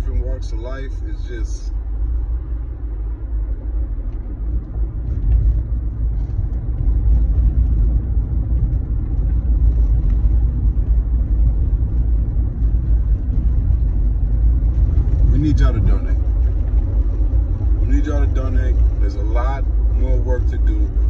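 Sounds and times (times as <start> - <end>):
car cabin rumble: 0.0 - 21.0.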